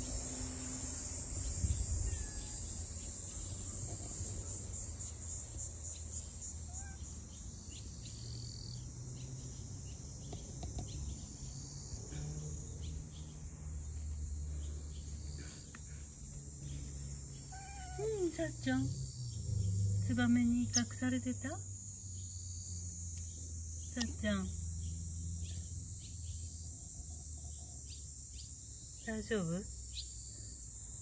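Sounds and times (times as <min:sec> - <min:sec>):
insect trilling: 0:00.0 - 0:08.9, 0:16.6 - 0:31.0.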